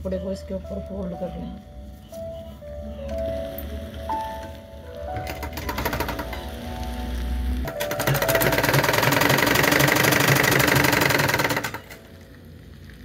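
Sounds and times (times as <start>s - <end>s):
sewing machine stitching: 5.2s - 6.6s, 7.7s - 12.1s.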